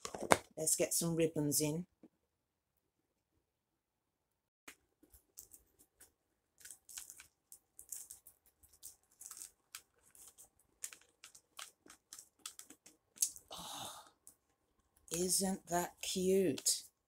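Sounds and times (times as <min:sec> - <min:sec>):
scratchy rustling and clicks: 0:04.7 - 0:13.4.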